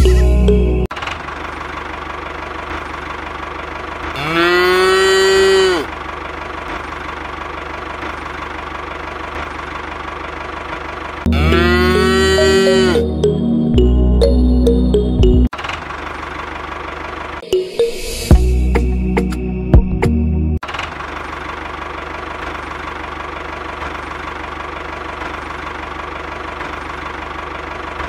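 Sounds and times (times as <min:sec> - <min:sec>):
engine idling: 0:00.0 - 0:12.1, 0:15.5 - 0:17.4, 0:20.6 - 0:28.0
cow mooing: 0:04.2 - 0:05.9, 0:11.3 - 0:13.1.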